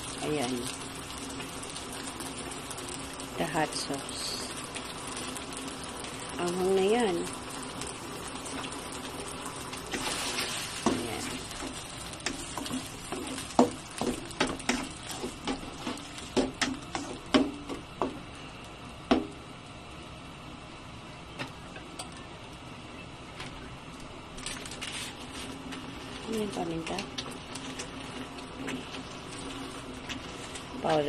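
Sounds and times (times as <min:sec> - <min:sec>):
sauce sizzling: 0:00.0 - 0:20.5, 0:24.6 - 0:31.0
spatula scraping wok: 0:09.9 - 0:18.2, 0:24.8 - 0:31.0.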